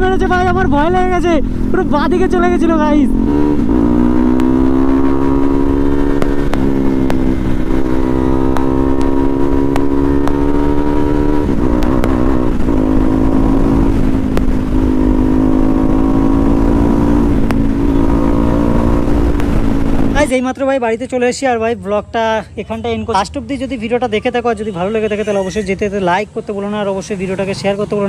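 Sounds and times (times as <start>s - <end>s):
motorcycle engine accelerating: 0.0s - 20.3s
wind noise: 0.0s - 20.3s.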